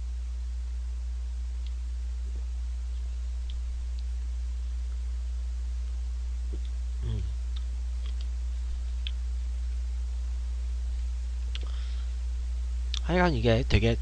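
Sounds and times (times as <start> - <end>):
steady low hum: 0.0 - 14.0
brief low vocal sound: 7.0 - 7.4.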